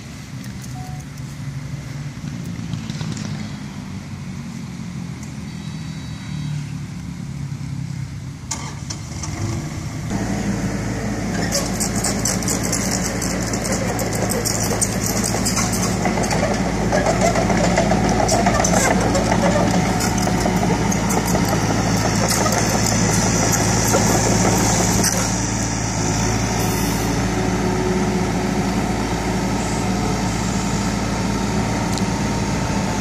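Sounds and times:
excavator diesel engine revving: 0:08.9 - 0:33.0.

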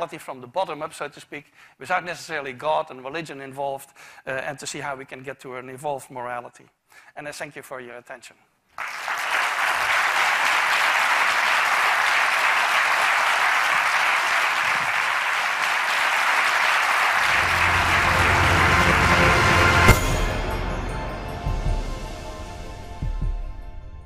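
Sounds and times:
audience applauding: 0:08.8 - 0:21.3.

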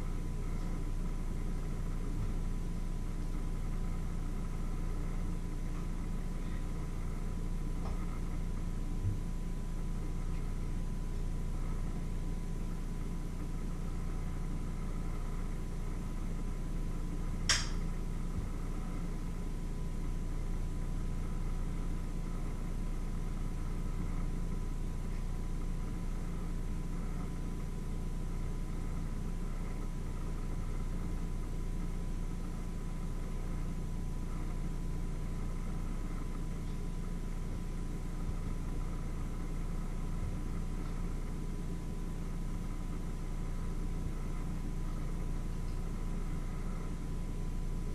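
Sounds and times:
low machine hum: 0:00.0 - 0:47.9
sharp click: 0:17.5 - 0:17.8.

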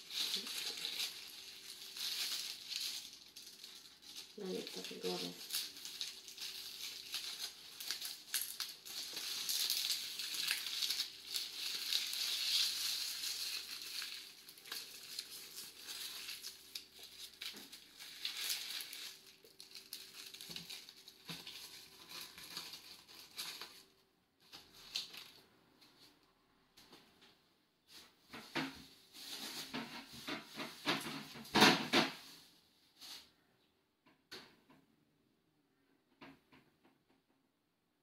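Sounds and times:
leaves rustling and crinkling: 0:00.0 - 0:25.4, 0:29.1 - 0:31.5.

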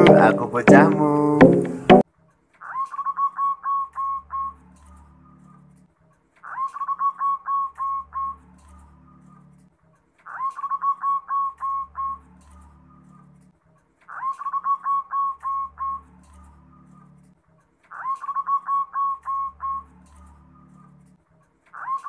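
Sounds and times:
dove cooing: 0:14.2 - 0:16.0, 0:17.9 - 0:19.8.

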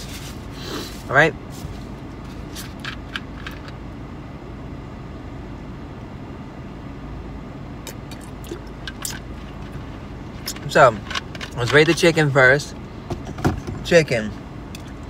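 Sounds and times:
car cabin hum: 0:00.0 - 0:15.0
person drinking: 0:07.9 - 0:09.2.

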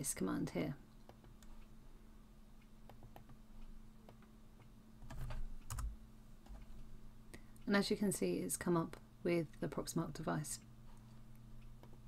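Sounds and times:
faint steady hum: 0:00.0 - 0:12.0
keyboard keystrokes: 0:05.0 - 0:06.7.

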